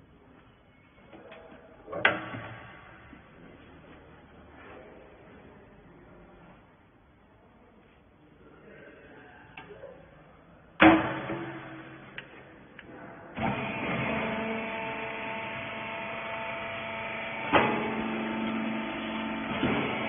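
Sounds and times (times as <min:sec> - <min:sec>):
press clunk: 0:10.8 - 0:12.4
hydraulic pump humming and whining: 0:10.8 - 0:20.0.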